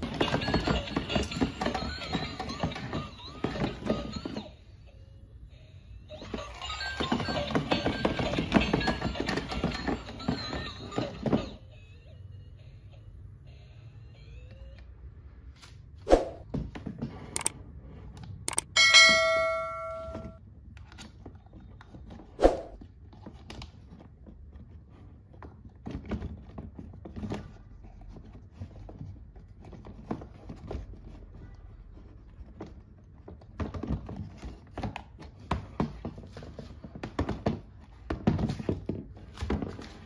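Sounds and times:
bell-like ding: 18.7s - 20.4s.

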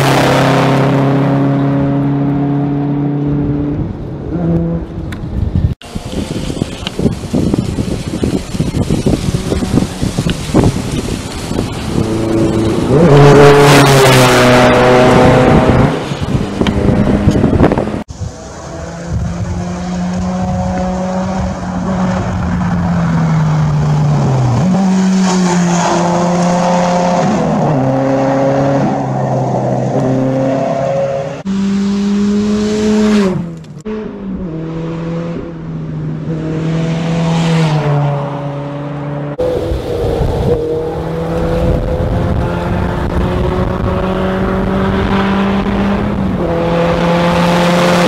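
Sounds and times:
rally car engines revving: 0.0s - 5.2s, 5.8s - 48.0s
tyres spraying gravel: 5.8s - 14.7s.

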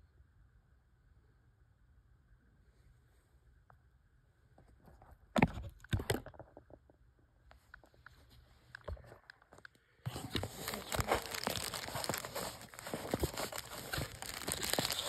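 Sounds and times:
paper wrapping crinkling: 10.1s - 15.0s.

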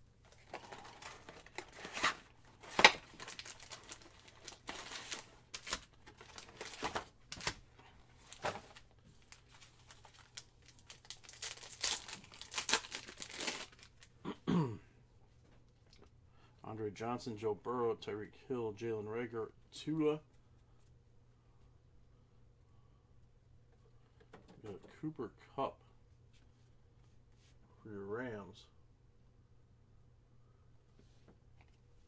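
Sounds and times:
foil wrappers crinkling: 0.3s - 7.6s, 8.2s - 14.1s
foil pack tearing open: 0.4s - 7.6s, 10.1s - 14.0s.

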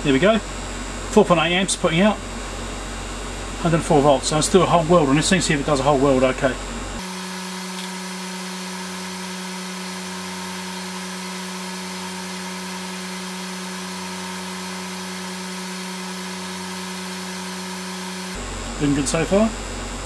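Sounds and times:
electrofusion welder humming: 0.0s - 20.0s.

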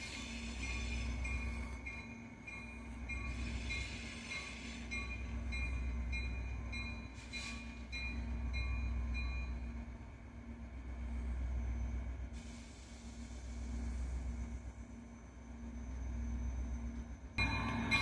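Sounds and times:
diesel locomotive engines rumbling: 0.0s - 18.0s
locomotive bell ringing: 0.6s - 9.8s, 17.4s - 18.0s.

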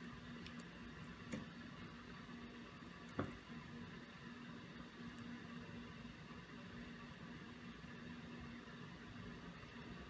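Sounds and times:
faint room hum: 0.0s - 10.0s
soft knock: 3.2s - 3.4s.

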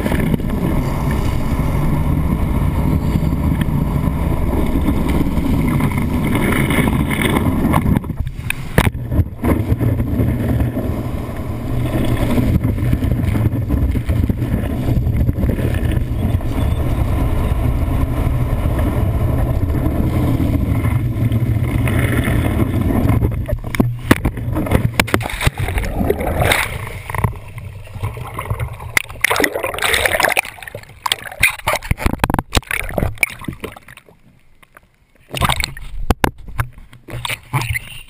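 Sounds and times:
low rumble: 0.0s - 34.0s
wind on microphone: 0.0s - 34.0s
water rushing and spraying: 0.0s - 34.2s
board smacking water: 5.0s - 10.9s, 20.6s - 34.2s, 35.3s - 37.8s.

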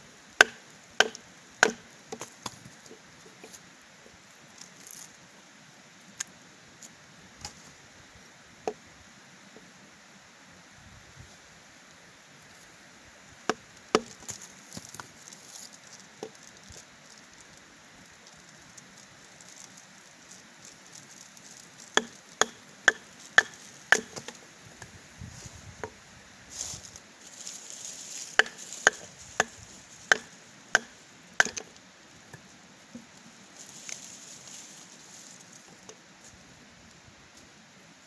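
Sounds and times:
chopping tool striking wood: 0.4s - 2.3s, 13.5s - 14.2s, 22.0s - 24.4s, 28.4s - 31.7s.

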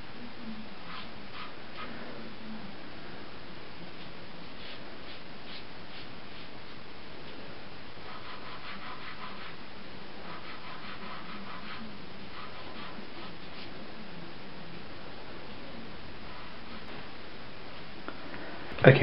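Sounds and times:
steady hiss: 0.0s - 19.0s
pastel scratching on paper: 0.8s - 1.9s, 3.9s - 6.8s, 8.0s - 9.6s, 10.2s - 13.8s, 16.3s - 16.9s.

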